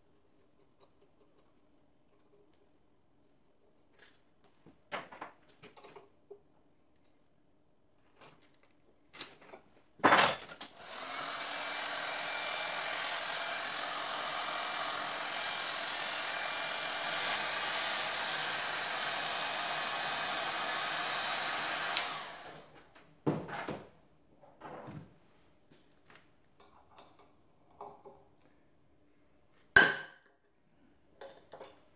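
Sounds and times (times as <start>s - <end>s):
heat gun blowing with whine: 10.7s - 22.9s.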